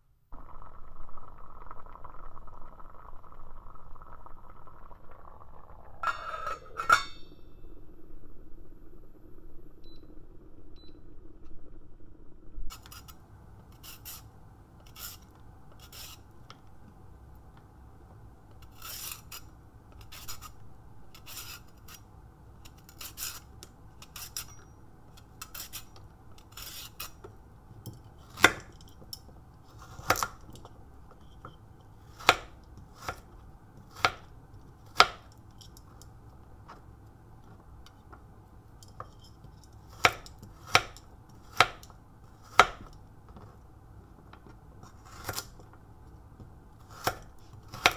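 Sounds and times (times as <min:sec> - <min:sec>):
peeler scraping a carrot: 0:12.7 - 0:16.3, 0:18.6 - 0:27.3, 0:44.8 - 0:45.6
knife slicing on cutting board: 0:45.0 - 0:45.6.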